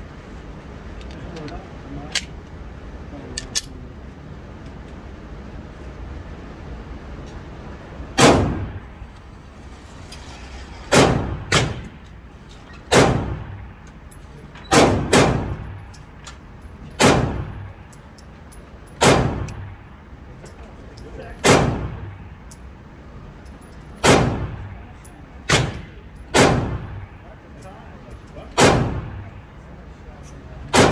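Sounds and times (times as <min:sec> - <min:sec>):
pistol shots echoing indoors: 0:08.2 - 0:08.8, 0:12.9 - 0:13.6, 0:14.7 - 0:15.7, 0:17.0 - 0:17.7, 0:19.0 - 0:19.7, 0:21.4 - 0:22.0, 0:24.0 - 0:24.6, 0:25.5 - 0:27.0, 0:28.5 - 0:29.2, 0:30.7 - 0:30.9.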